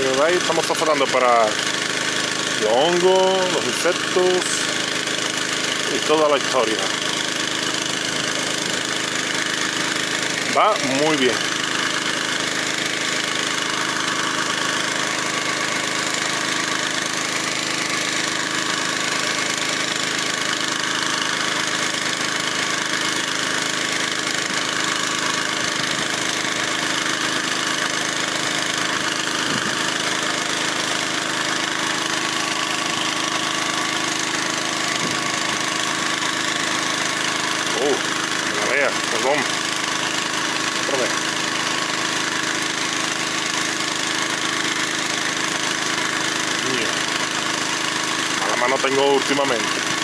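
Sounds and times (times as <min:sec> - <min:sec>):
pump engine running: 0:00.0 - 0:50.0.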